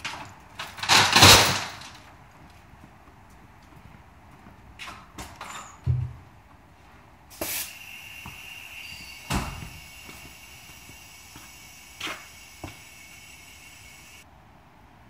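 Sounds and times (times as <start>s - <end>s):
knocks and clanks: 0.0s - 2.1s, 4.8s - 6.3s
steady hiss: 7.2s - 14.3s.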